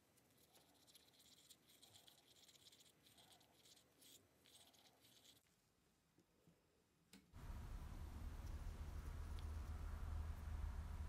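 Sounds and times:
stick scratching in plastic cup: 0.4s - 5.5s.

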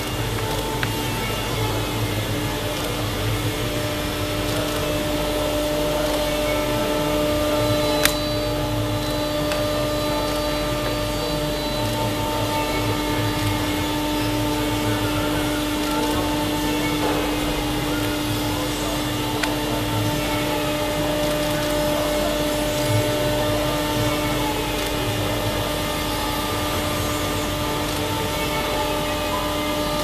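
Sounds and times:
blower rushing: 0.0s - 30.0s
machine humming: 0.0s - 30.0s.

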